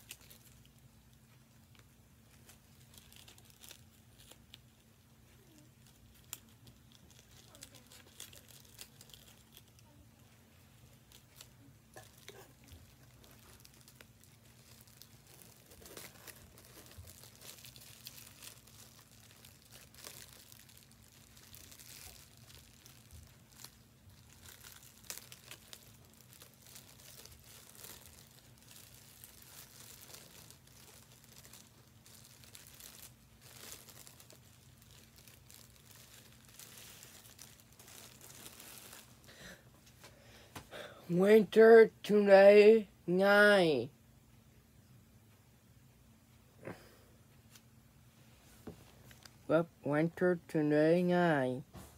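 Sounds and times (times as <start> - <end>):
plastic bag crinkling: 0.0 - 40.0.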